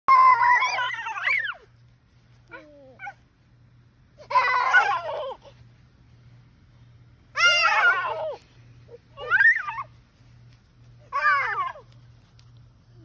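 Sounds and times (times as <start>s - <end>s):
toddlers squealing: 7.4s - 8.4s.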